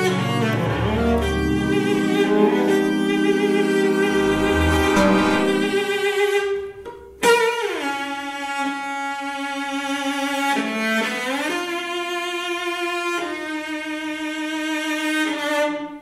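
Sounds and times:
cello and electronic music: 0:00.0 - 0:06.5.

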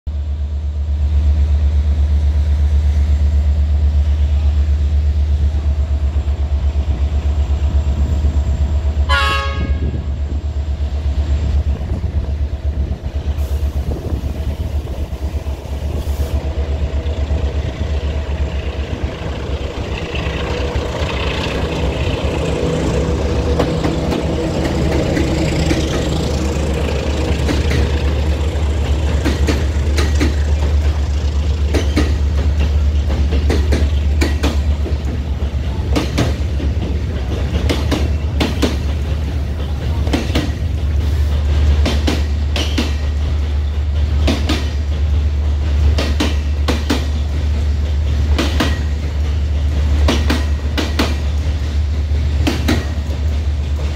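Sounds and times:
diesel locomotive approaching: 0:00.1 - 0:53.9
train horn blast: 0:09.0 - 0:10.1.

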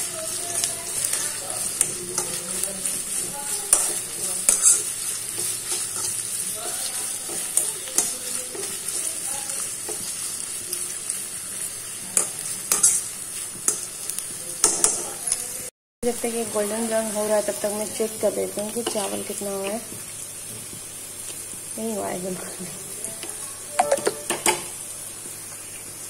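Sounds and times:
onions sizzling in oil: 0:00.0 - 0:26.0
metal spatula scraping a pan: 0:00.3 - 0:10.9, 0:12.2 - 0:13.8.

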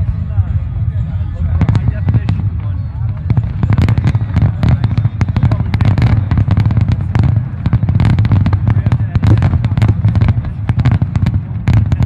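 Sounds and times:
fireworks popping and crackling: 0:01.5 - 0:12.0.

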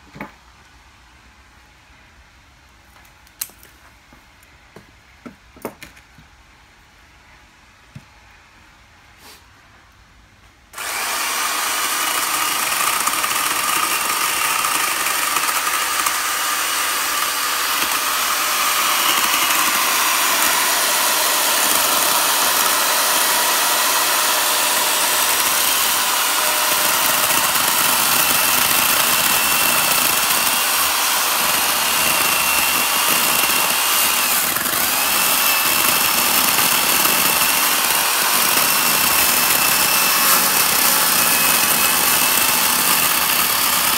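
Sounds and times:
electric chainsaw cutting wood: 0:10.8 - 0:43.9.

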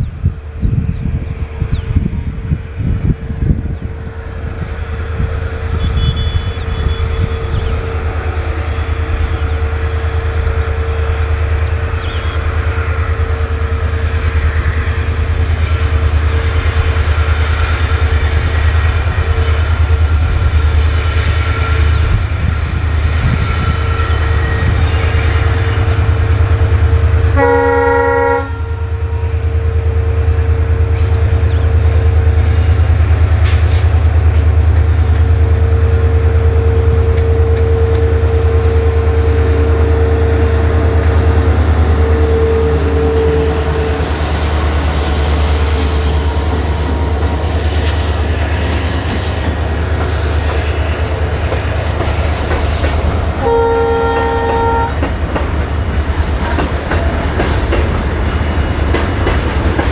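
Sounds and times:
diesel locomotives rumbling: 0:00.0 - 0:59.9
locomotive horn blast: 0:05.5 - 0:11.2, 0:27.3 - 0:29.4, 0:36.3 - 0:44.6, 0:53.4 - 0:55.1.

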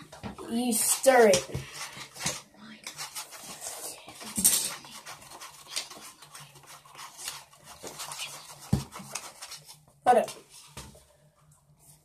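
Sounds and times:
spoon scraping in a cup: 0:02.9 - 0:07.3.

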